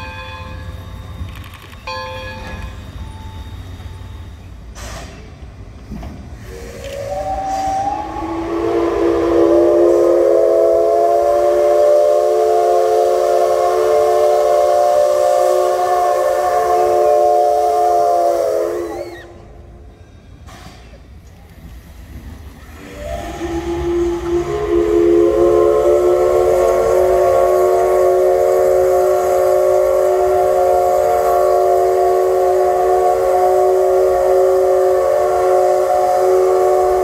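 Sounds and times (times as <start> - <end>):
steam hiss: 2.3 - 37.0
steam locomotive whistle: 6.4 - 19.9, 22.7 - 37.0.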